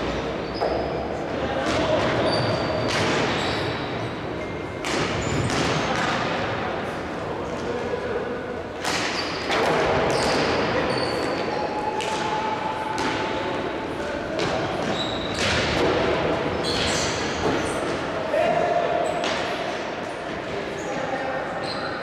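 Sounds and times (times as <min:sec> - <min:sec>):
hockey stick hitting ball: 0:04.8 - 0:06.6.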